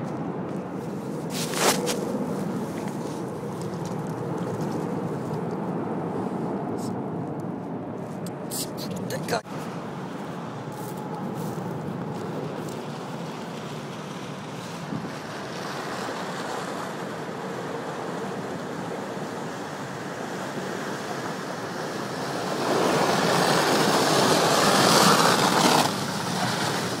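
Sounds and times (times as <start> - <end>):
water rushing: 8.5 - 27.0.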